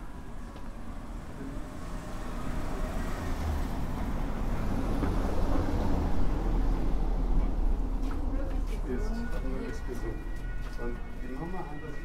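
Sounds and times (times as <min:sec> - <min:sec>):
car driving past on cobblestones: 0:00.8 - 0:08.3.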